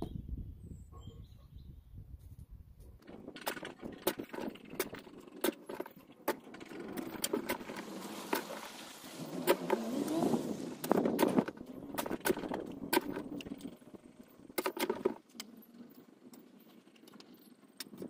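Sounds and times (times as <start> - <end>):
vehicle engine running: 3.0 - 18.0
shovel scraping stony soil: 3.1 - 13.6.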